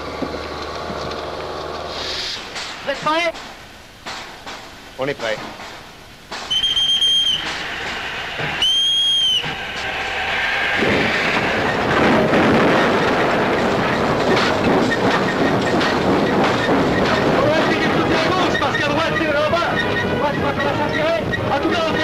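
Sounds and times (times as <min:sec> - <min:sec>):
steam locomotive running: 0:00.0 - 0:22.0
steam locomotive whistle blasts: 0:06.5 - 0:11.9.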